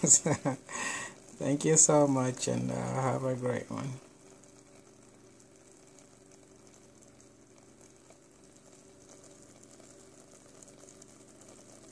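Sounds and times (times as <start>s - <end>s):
food simmering in a pan: 0.0s - 11.9s.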